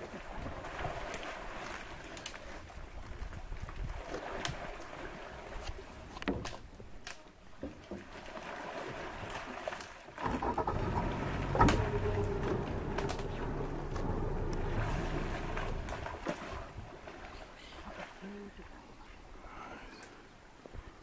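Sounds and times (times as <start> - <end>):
wind on microphone: 2.8 - 4.6
boat motor running: 10.2 - 16.6
sharp knocks: 11.5 - 13.3
loud thump: 11.5 - 15.0.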